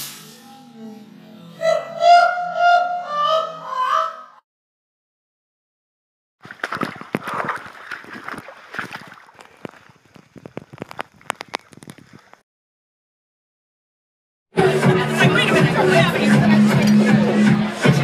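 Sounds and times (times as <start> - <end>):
running water: 6.4 - 12.4
water sloshing and splashing: 6.4 - 12.4.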